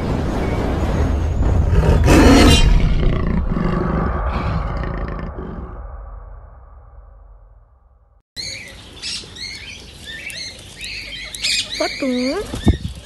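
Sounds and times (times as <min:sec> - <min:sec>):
heavy rumble: 0:00.0 - 0:08.2
loud deep roar: 0:01.6 - 0:06.9.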